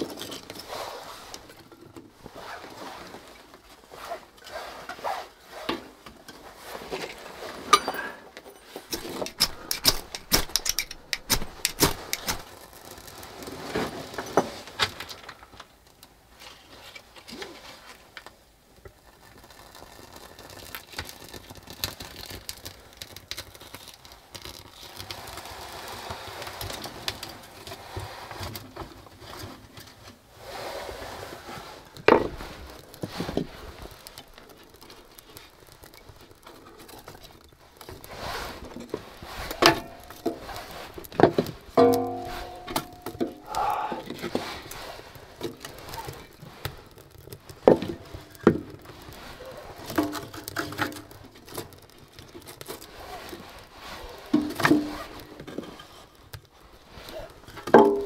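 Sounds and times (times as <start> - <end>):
fire hissing and crackling: 0.0 - 58.0
kindling sticks clattering: 7.6 - 15.4, 32.1 - 51.7, 57.2 - 58.0.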